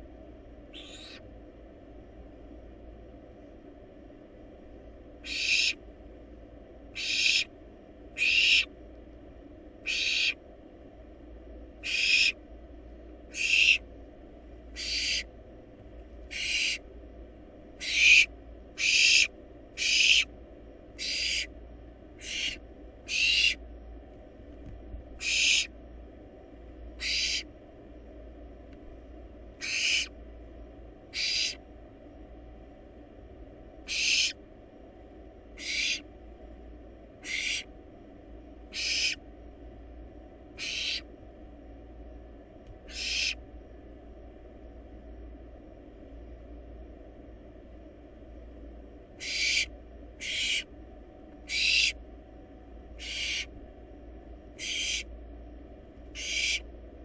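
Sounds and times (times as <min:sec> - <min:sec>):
faint low hum: 0:00.0 - 0:57.0
barn owl hissing calls: 0:00.7 - 0:01.3, 0:05.2 - 0:05.8, 0:06.9 - 0:08.8, 0:09.8 - 0:10.4, 0:11.8 - 0:12.4, 0:13.3 - 0:13.9, 0:14.7 - 0:15.3, 0:16.2 - 0:16.9, 0:17.8 - 0:21.6, 0:22.2 - 0:23.6, 0:25.2 - 0:25.8, 0:27.0 - 0:27.5, 0:29.6 - 0:30.2, 0:31.1 - 0:31.6, 0:33.8 - 0:34.4, 0:35.5 - 0:36.1, 0:37.2 - 0:37.7, 0:38.7 - 0:39.2, 0:40.5 - 0:41.1, 0:42.8 - 0:43.4, 0:49.2 - 0:50.7, 0:51.4 - 0:52.0, 0:53.0 - 0:53.5, 0:54.5 - 0:55.1, 0:56.1 - 0:56.7.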